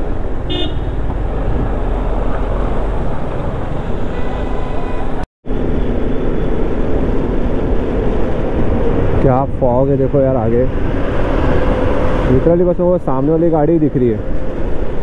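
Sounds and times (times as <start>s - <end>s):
vehicle horn beep: 0.5s - 1.0s, 3.9s - 5.2s
wind rumble on microphone: 5.5s - 12.6s.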